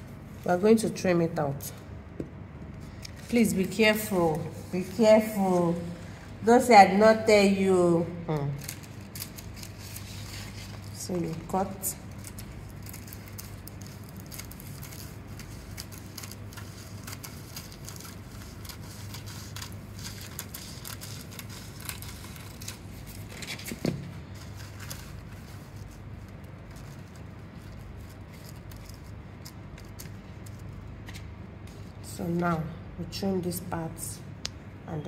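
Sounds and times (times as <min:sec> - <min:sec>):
low steady hum: 0:00.0 - 0:35.0
plastic sheet crinkling: 0:08.4 - 0:32.1.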